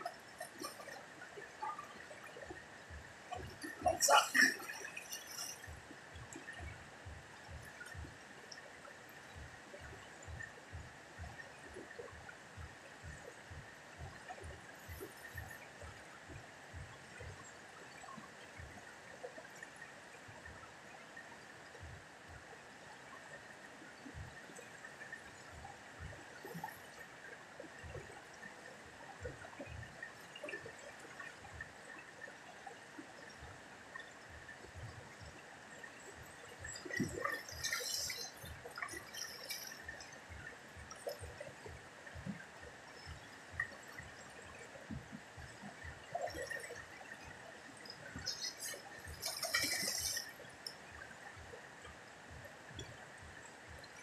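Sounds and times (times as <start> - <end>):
river flowing past rocks: 0.0 - 54.0
water splashing over person: 3.3 - 5.8, 36.7 - 40.0, 48.2 - 50.4.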